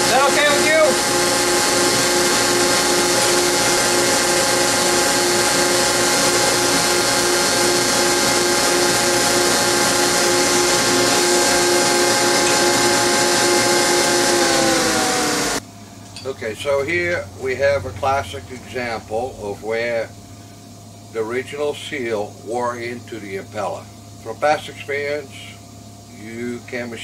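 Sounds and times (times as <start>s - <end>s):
motor humming: 0.0s - 15.6s.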